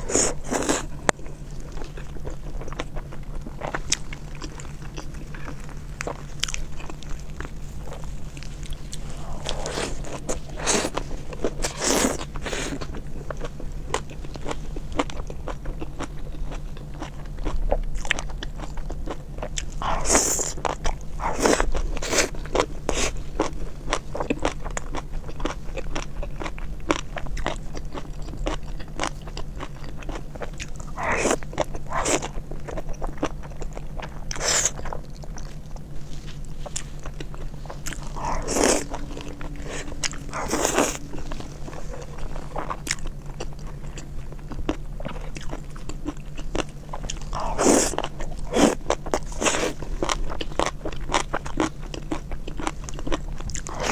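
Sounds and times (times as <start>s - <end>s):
faint steady hum: 0.0s - 53.9s
wet chewing and mouth smacks: 0.0s - 53.9s.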